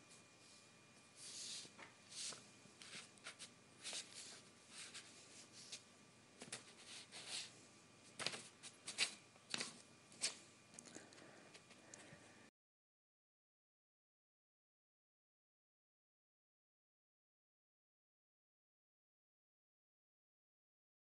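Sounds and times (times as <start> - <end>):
paper rustling and crinkling: 1.2 - 10.4.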